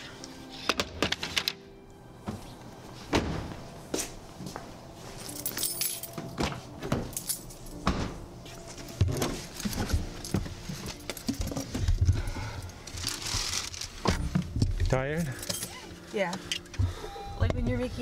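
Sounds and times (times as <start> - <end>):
keys jingling: 5.2 - 6.4, 7.1 - 7.8.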